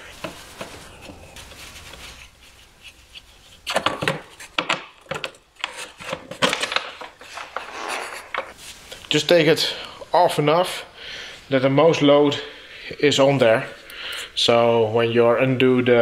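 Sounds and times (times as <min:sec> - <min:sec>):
quiet rustling: 0:00.0 - 0:04.6, 0:06.9 - 0:09.8
plastic clicks knocks and scraping: 0:03.6 - 0:07.7.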